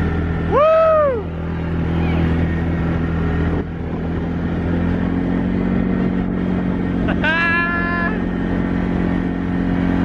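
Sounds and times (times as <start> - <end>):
quad bike engine running: 0.0 - 10.0
person whooping: 0.5 - 1.3, 7.1 - 8.2.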